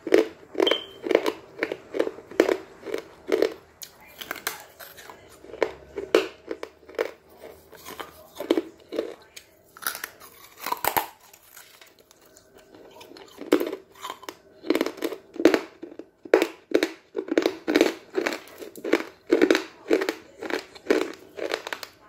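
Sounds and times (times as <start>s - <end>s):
person crunching eggshell: 0.0s - 22.0s.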